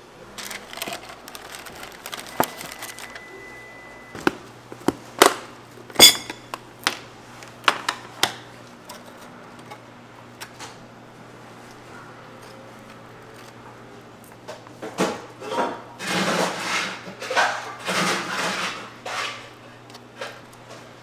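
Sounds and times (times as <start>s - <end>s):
cardboard and paper handling: 0.4s - 3.3s
short ringing clink: 6.0s - 6.5s.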